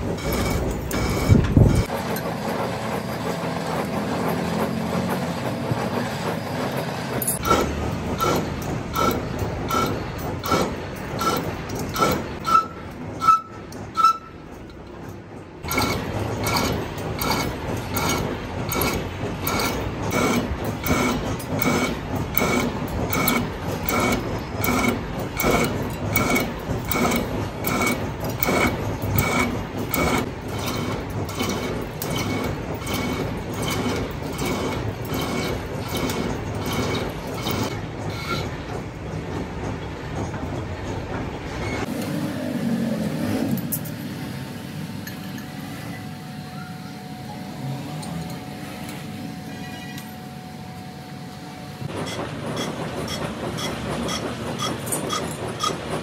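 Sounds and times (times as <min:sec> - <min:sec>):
metal clanking on metal: 0:06.8 - 0:41.9.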